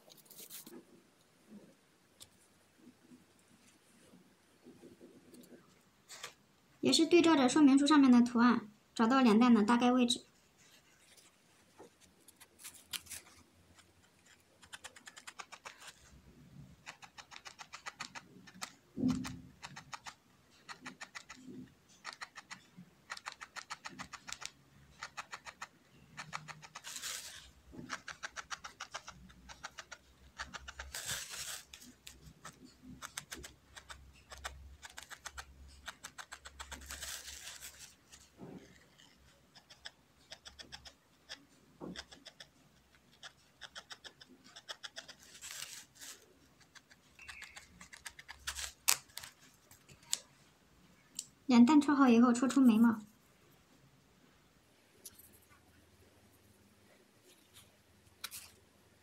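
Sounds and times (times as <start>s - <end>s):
felting needle ticking into wool: 16.8s - 27.0s.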